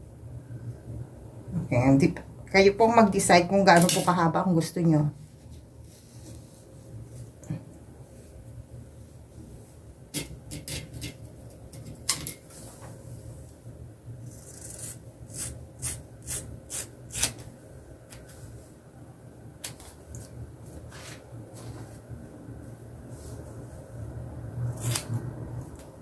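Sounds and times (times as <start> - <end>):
scissors snipping hair: 24.7 - 25.2.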